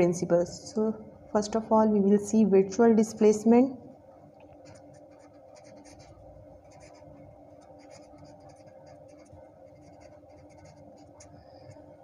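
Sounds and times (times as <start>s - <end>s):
faint steady hum: 0.0s - 12.0s
pen scratching on paper: 4.6s - 11.8s.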